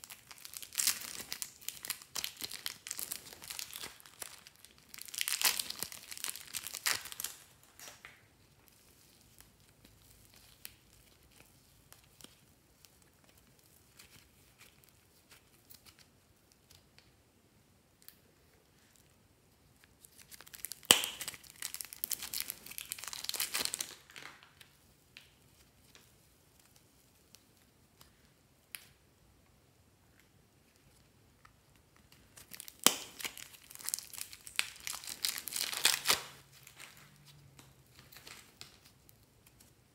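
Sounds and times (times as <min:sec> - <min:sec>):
plastic bags crinkling: 0:00.0 - 0:08.9, 0:20.1 - 0:24.7, 0:32.2 - 0:39.0.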